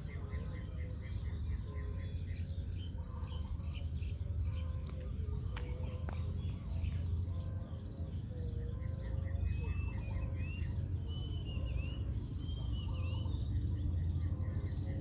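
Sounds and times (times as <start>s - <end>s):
birds chirping and calling: 0.0s - 15.0s
steady low rumble: 0.0s - 15.0s.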